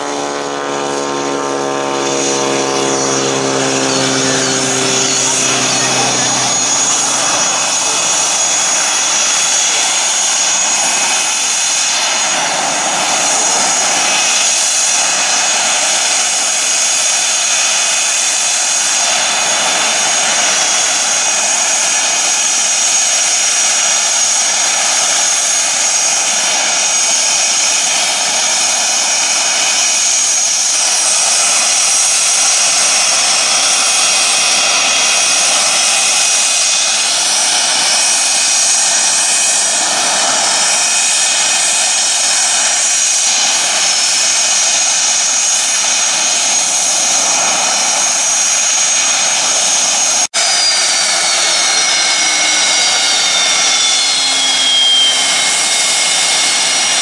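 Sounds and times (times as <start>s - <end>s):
high-pitched jet whine: 0.0s - 57.0s
loud rushing jet exhaust: 0.0s - 57.0s.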